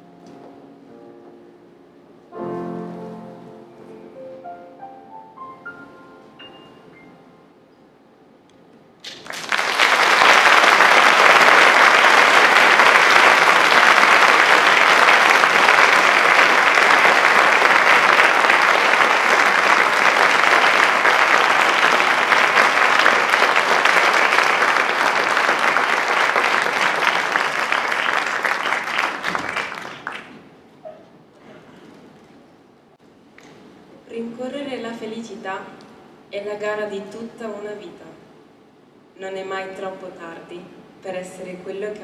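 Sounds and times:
audience applauding: 9.0 - 30.6.

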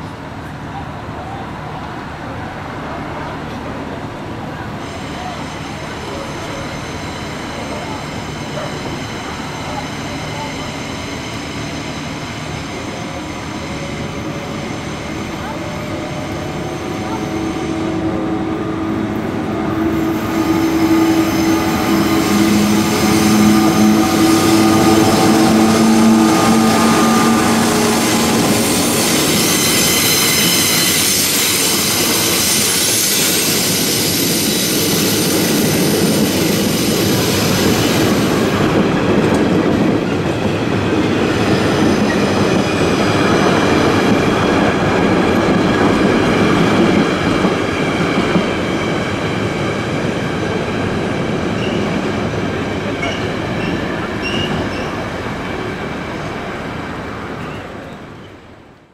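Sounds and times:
locomotive humming: 0.0 - 58.9
high wheel squeal: 4.8 - 38.6, 51.6 - 52.0, 53.0 - 55.1.

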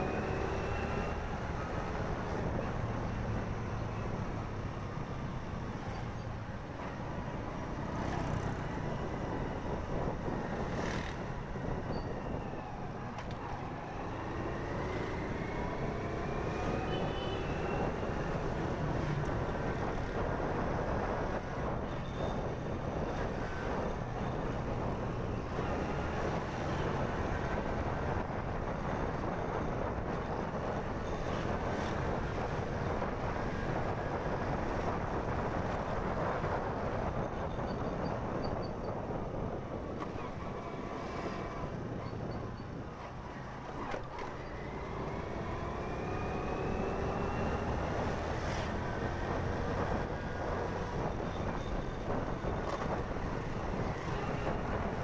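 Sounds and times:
wind noise on microphone: 8.4 - 14.0, 17.4 - 55.0.

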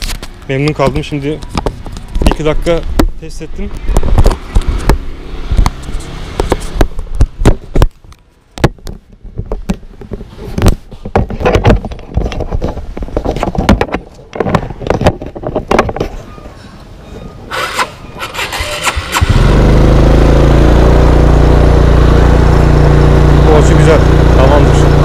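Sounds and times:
camera handling knocks and rubbing: 3.8 - 16.2.

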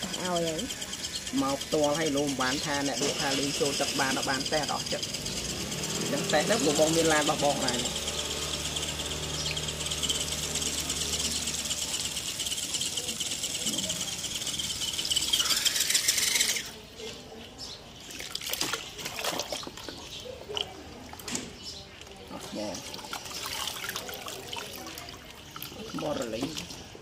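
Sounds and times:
toy car wheels churning water: 0.0 - 27.0
small splashes and knocks: 18.1 - 27.0.

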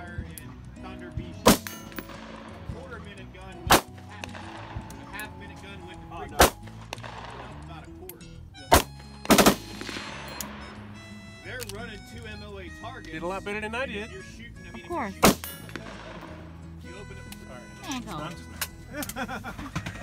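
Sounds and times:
pistol shots: 1.4 - 2.7, 3.7 - 5.2, 6.3 - 7.6, 8.7 - 11.7, 15.2 - 16.5.

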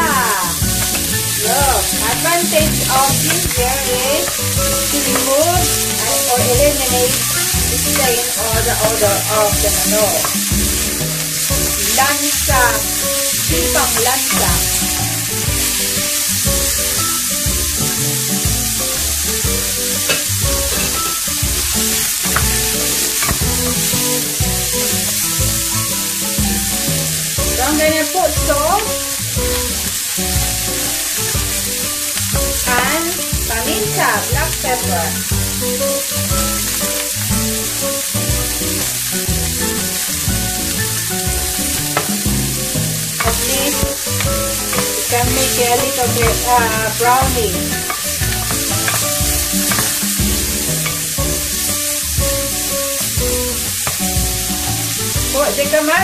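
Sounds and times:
food sizzling in hot oil: 0.0 - 56.0
music: 0.0 - 56.0
wooden spoon scraping a pan: 0.6 - 16.5, 20.0 - 25.2, 39.6 - 51.7.

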